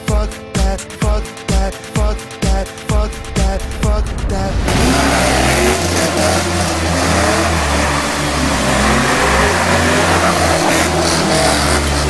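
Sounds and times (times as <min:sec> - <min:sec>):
car engine revving hard: 0:03.1 - 0:12.0
tyres squealing: 0:07.4 - 0:12.0.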